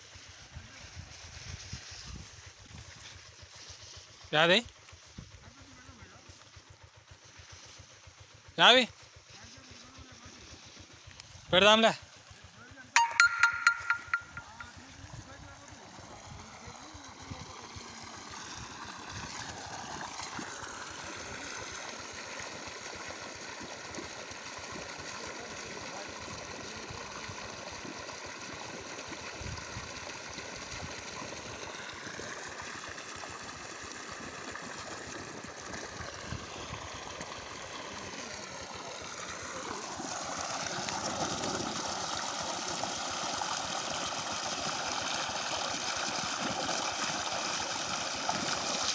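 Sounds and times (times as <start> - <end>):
water gushing from a hose: 0.0 - 13.0, 14.6 - 48.9
water splashing onto soil: 34.3 - 48.9.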